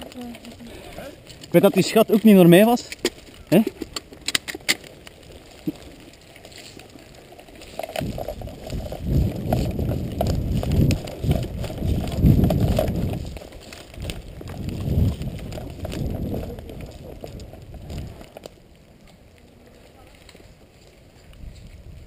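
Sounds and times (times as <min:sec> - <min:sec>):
running footsteps on wet leaves: 0:00.0 - 0:22.0
camera jostling and rubbing: 0:01.2 - 0:18.6.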